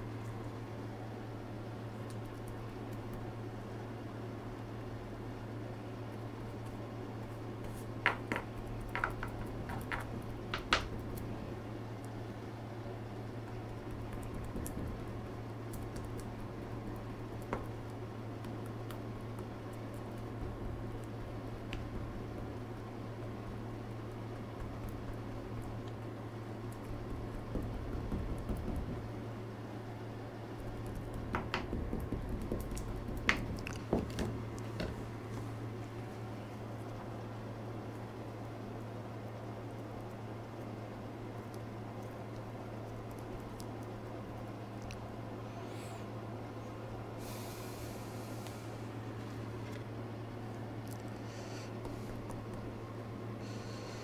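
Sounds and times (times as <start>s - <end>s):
steady low hum: 0.0s - 54.0s
soft squishing: 32.6s - 46.8s, 48.3s - 53.4s.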